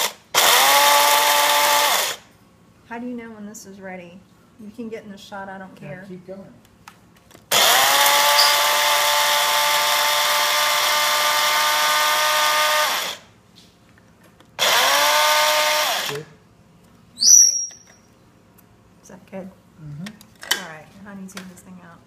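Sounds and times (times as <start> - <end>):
electric coffee grinder grinding: 0.0 - 2.2, 7.5 - 13.3, 14.6 - 16.2.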